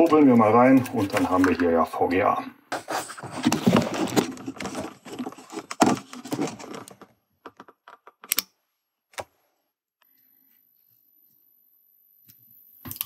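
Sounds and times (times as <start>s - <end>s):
plastic rubbing and scraping: 0.1s - 1.8s, 2.7s - 8.2s.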